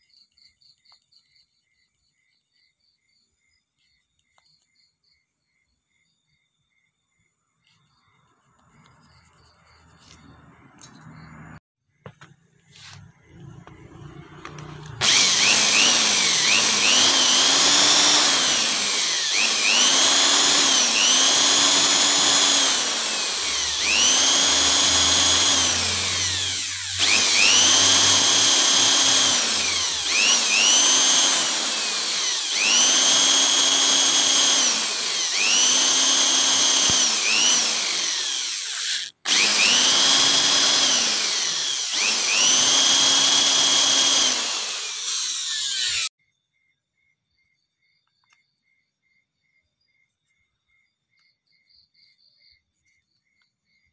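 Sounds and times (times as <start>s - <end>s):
electric drill whining: 12.2s - 46.2s.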